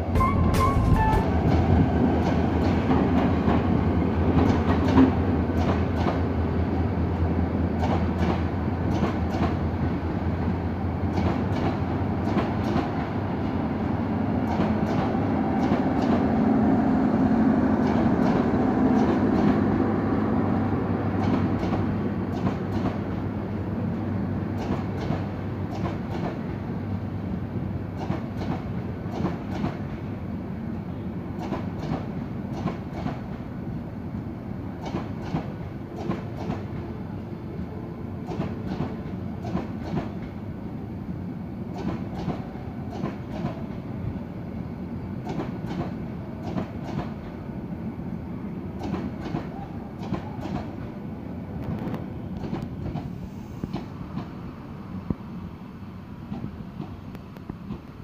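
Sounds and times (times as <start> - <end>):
train rumble: 0.0 - 58.0
train wheels clicking over rail joints: 0.9 - 6.4, 7.7 - 9.9, 11.0 - 13.2, 14.3 - 16.4, 17.8 - 19.7, 21.1 - 23.2, 24.5 - 26.6, 27.9 - 30.1, 31.3 - 33.5, 34.7 - 36.8, 38.2 - 40.4, 41.7 - 43.9, 45.2 - 47.4, 48.7 - 51.0, 51.7 - 54.4, 56.3 - 58.0.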